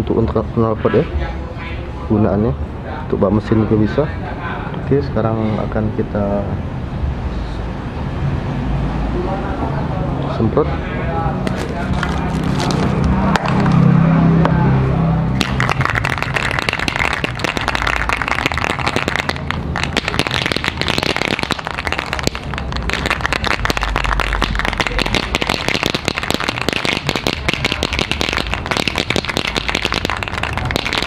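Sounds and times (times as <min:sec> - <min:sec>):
dense crackle: 0:11.4 - 0:13.9, 0:15.4 - 0:31.0
spray paint can hissing: 0:15.4 - 0:31.0.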